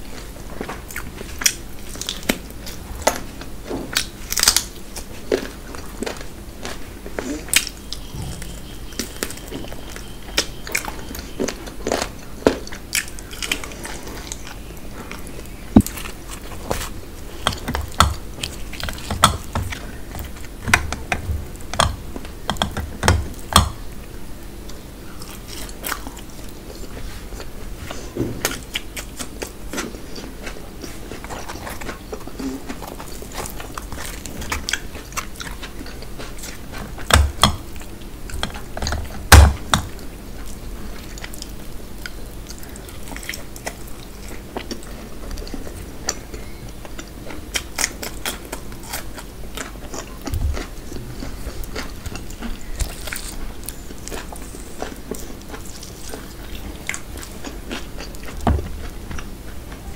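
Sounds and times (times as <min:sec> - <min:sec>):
chewing and biting: 0:00.1 - 0:23.8, 0:24.6 - 0:59.9
fingers tearing bread: 0:46.9 - 0:59.9.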